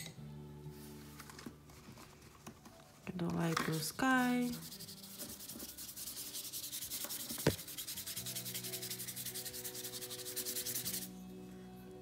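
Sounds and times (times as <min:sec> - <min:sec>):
paintbrush scrubbing on paper: 0:04.4 - 0:11.1.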